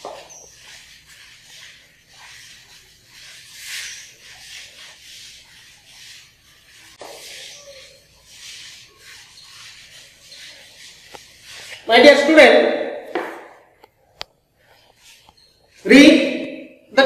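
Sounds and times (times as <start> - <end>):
duster swishing on chalkboard: 0.0 - 13.8, 14.6 - 16.5.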